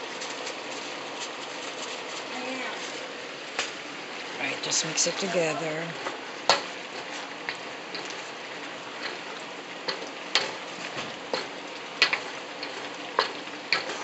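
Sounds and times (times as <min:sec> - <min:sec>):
stir-fry sizzling in a wok: 0:00.0 - 0:14.0
spatula scraping and knocking wok: 0:06.0 - 0:14.0.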